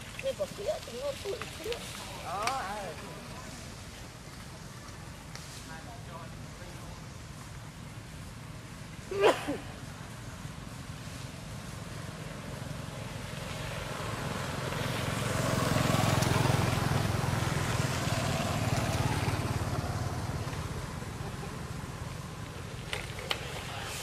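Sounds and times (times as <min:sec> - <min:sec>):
road noise: 0:00.0 - 0:24.0
motorbike engine passing: 0:06.9 - 0:24.0.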